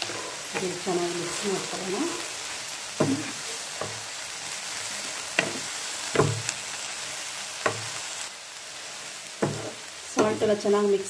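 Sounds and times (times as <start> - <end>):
spatula scraping pan: 0.0 - 1.8, 9.4 - 10.5
food sizzling in frying pan: 0.0 - 11.0.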